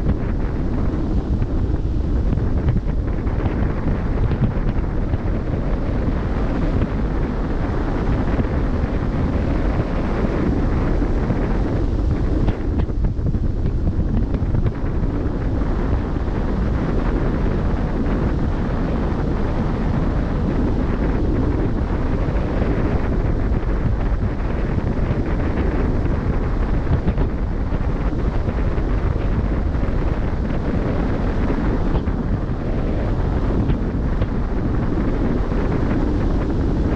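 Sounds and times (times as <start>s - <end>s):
wind buffeting microphone: 0.0s - 36.9s.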